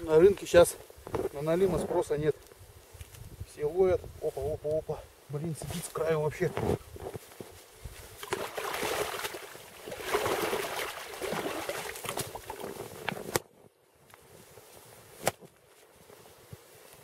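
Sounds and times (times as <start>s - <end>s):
water splashing and sloshing: 8.2s - 13.3s.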